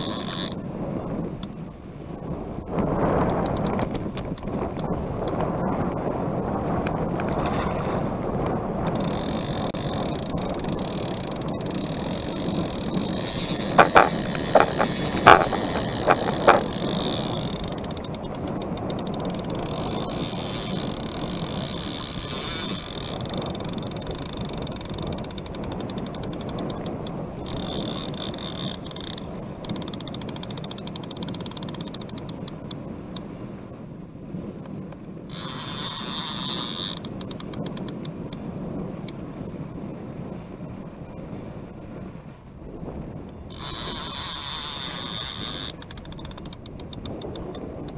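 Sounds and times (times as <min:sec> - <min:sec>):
fishing reel drag clicking: 0:00.0 - 0:02.2, 0:02.8 - 0:33.5, 0:34.5 - 0:39.6, 0:43.3 - 0:47.9
water and wind rushing: 0:00.0 - 0:47.9
fishing rod knocks: 0:08.8 - 0:20.0.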